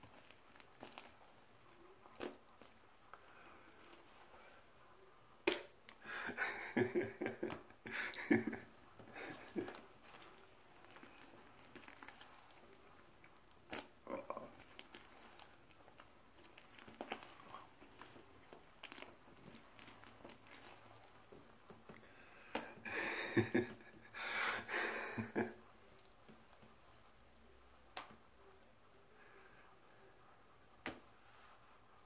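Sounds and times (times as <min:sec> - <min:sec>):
wet smacking of cream: 0:00.0 - 0:04.5, 0:05.4 - 0:06.0, 0:06.8 - 0:22.8, 0:27.8 - 0:28.3, 0:30.8 - 0:31.2
breathy laughter: 0:06.0 - 0:09.8, 0:22.9 - 0:25.6.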